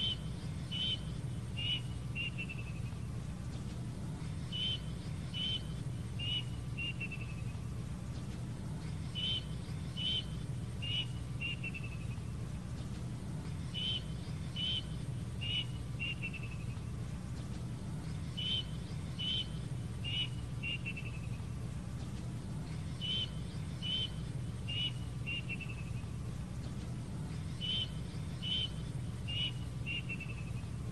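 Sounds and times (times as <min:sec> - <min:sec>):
cuckoo whistled song: 0:00.0 - 0:03.0, 0:04.5 - 0:07.6, 0:09.0 - 0:12.2, 0:13.7 - 0:16.9, 0:18.3 - 0:21.4, 0:22.9 - 0:26.0, 0:27.5 - 0:30.8
steady low hum: 0:00.0 - 0:30.9.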